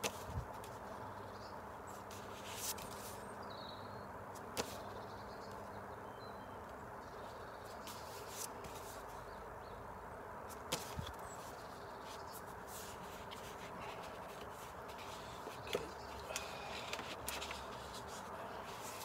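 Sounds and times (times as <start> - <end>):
low background hiss: 0.0 - 19.0
paper pages rustling: 2.1 - 3.2, 7.7 - 9.1, 10.5 - 19.0.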